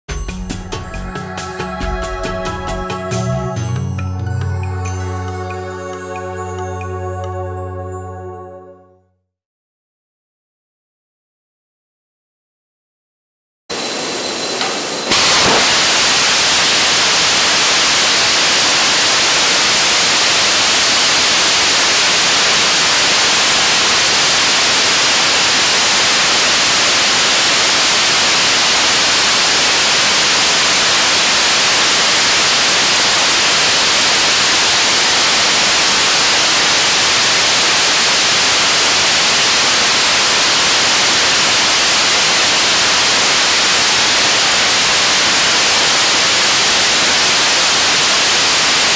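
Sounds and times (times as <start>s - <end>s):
rocket engine roaring: 13.7s - 45.7s.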